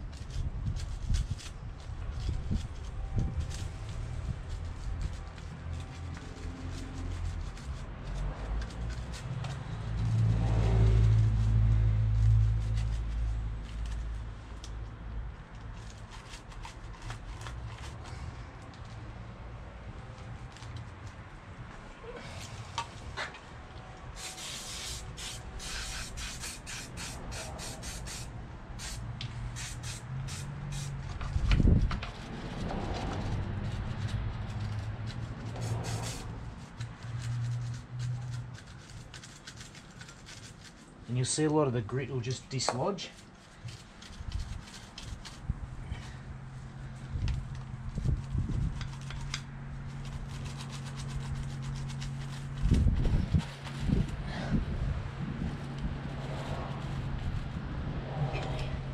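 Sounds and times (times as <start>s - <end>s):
vehicle engine rumble: 0.0s - 58.9s
aerosol spray hissing: 24.2s - 29.0s.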